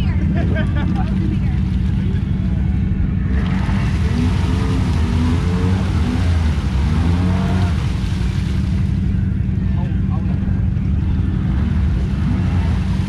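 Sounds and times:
utv engine revving: 0:00.0 - 0:13.0
tyres churning mud: 0:03.2 - 0:10.4, 0:11.0 - 0:13.0.

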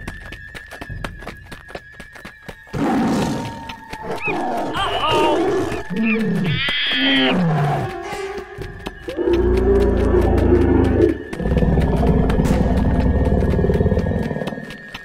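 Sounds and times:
cartoon animal roars and calls: 0:04.0 - 0:08.0.

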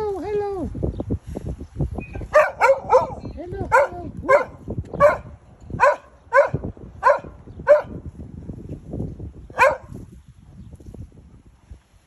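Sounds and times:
young dog barking: 0:02.2 - 0:08.0, 0:09.5 - 0:09.9.

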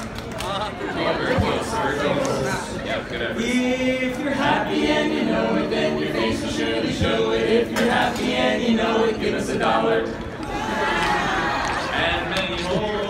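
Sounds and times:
men singing a cappella harmony: 0:01.1 - 0:10.4.

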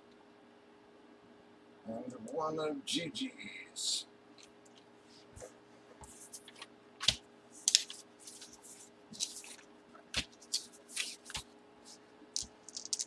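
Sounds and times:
packaging crinkling: 0:06.2 - 0:11.5, 0:12.3 - 0:13.0
cards tapping on table: 0:12.4 - 0:13.0.

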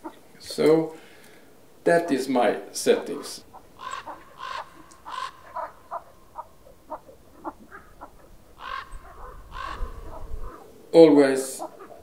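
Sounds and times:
crows cawing: 0:03.5 - 0:10.7, 0:11.5 - 0:12.0.

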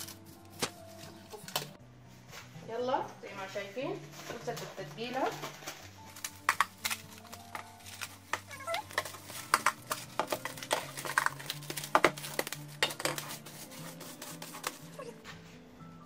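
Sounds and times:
faint music: 0:00.0 - 0:16.0
plastic film crinkling: 0:04.0 - 0:15.0.

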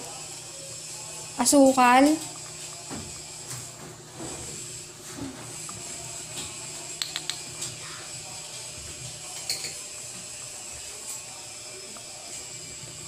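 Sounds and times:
stew bubbling at a simmer: 0:02.2 - 0:04.1
sharp clicks: 0:07.0 - 0:07.4.

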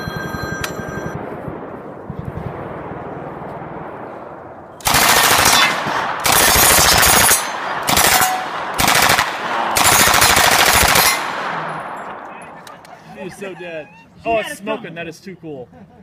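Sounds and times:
automatic gunfire bursts: 0:04.8 - 0:11.7.

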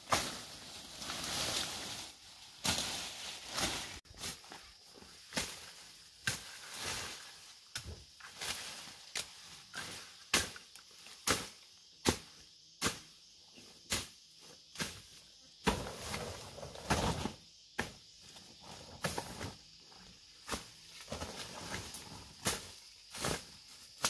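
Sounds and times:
rustling of cut vegetation: 0:00.0 - 0:13.1, 0:18.2 - 0:24.0.

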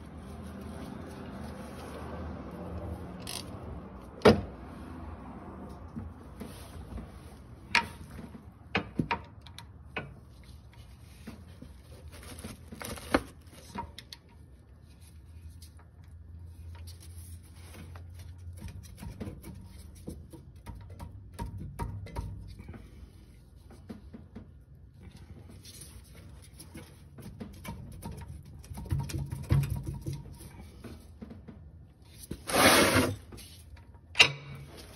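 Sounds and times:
ratchet clicks: 0:03.2 - 0:03.5.

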